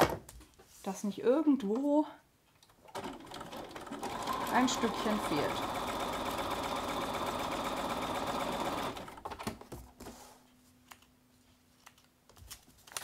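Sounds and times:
sewing machine stitching: 2.8s - 9.4s.

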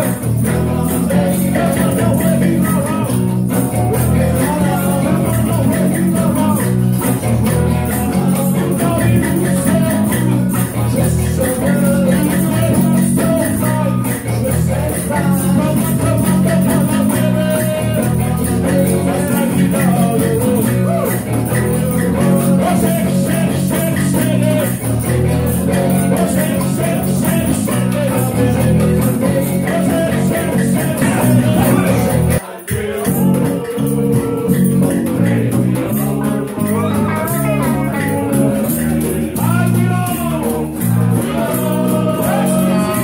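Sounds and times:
conga drums: 0.0s - 43.0s
electric bass guitar: 0.0s - 43.0s
electric guitar: 0.0s - 43.0s
man singing: 0.0s - 43.0s.

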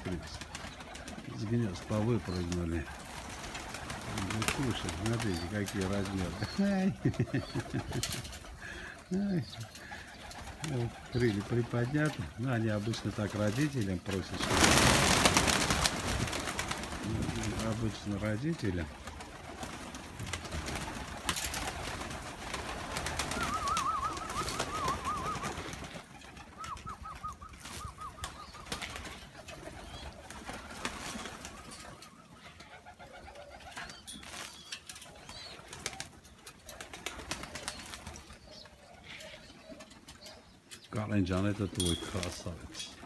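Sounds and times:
pigeons cooing: 0.0s - 43.0s
wing flaps: 12.9s - 17.9s, 18.9s - 31.7s.

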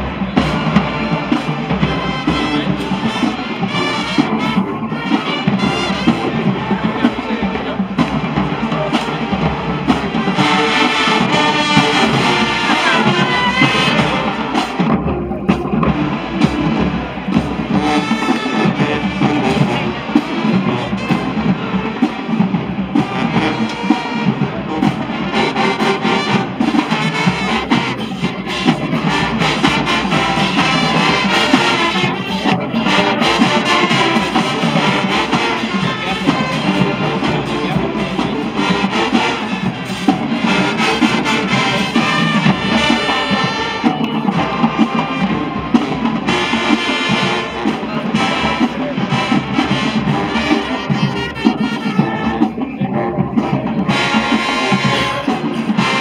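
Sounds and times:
brass horns: 0.0s - 56.0s
drumline with bass drums: 0.0s - 56.0s.

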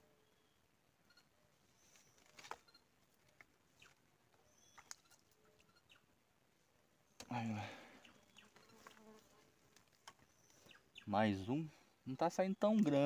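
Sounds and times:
faint bird chirps: 0.0s - 2.9s, 3.7s - 6.2s, 7.3s - 8.9s, 10.1s - 13.0s.

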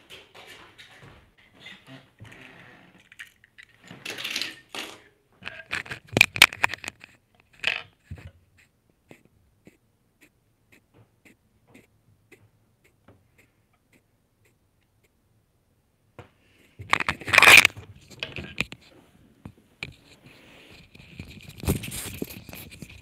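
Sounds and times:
toy cars clattering on tiled table: 3.0s - 7.0s.

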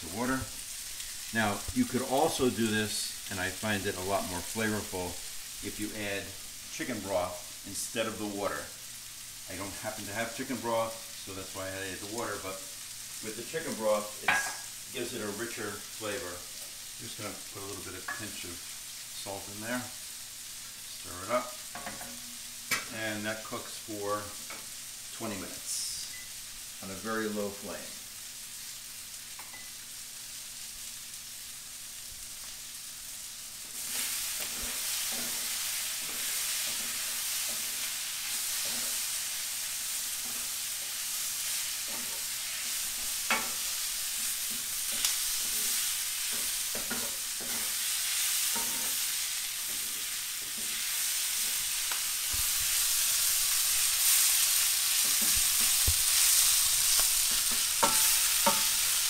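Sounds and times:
vegetables sizzling in skillet: 0.0s - 59.0s
wooden spoon knocking pan: 57.3s - 58.8s.

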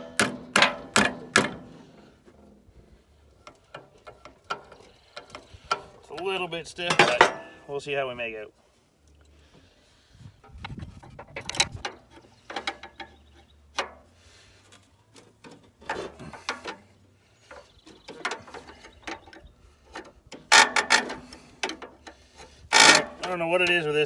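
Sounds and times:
metal clatter: 15.1s - 23.8s.

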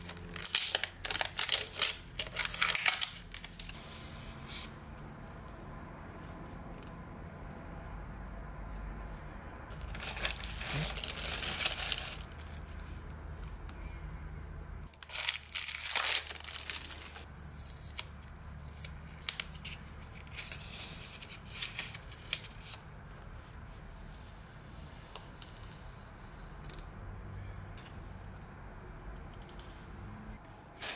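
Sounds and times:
paper tape peeling and crackling: 0.0s - 3.8s, 9.7s - 12.8s, 14.9s - 22.8s.

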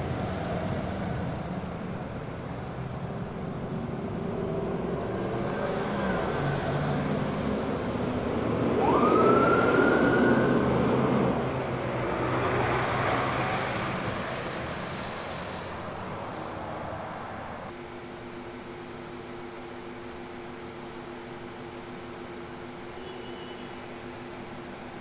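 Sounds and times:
road traffic passing: 0.0s - 17.7s
police siren wail: 5.4s - 14.0s.

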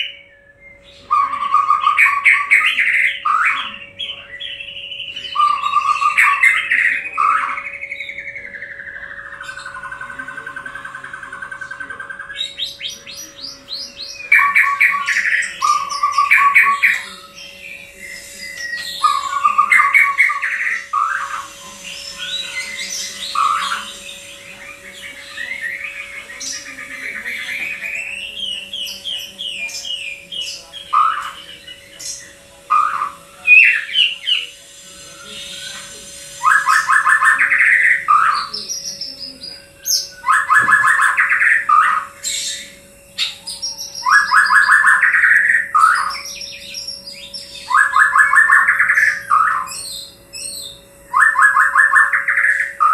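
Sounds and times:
bird singing whistled phrases: 0.0s - 52.9s
faint steady hum: 0.0s - 52.9s
bird rattling call: 35.4s - 38.8s.

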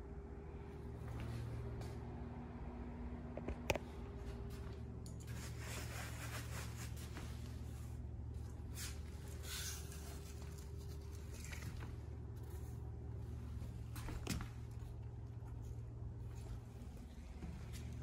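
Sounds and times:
steady low hum: 0.0s - 18.0s
soft rubbing and rustling: 4.1s - 18.0s.

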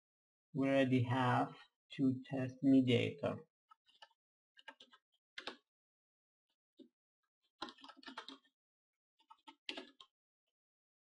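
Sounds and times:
typing on computer keyboard: 3.9s - 5.6s, 7.6s - 8.5s, 9.2s - 10.1s.

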